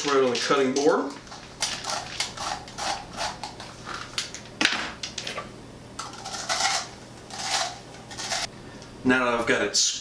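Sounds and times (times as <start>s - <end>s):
metal scoop scraping squash: 1.7s - 3.5s, 6.0s - 8.5s.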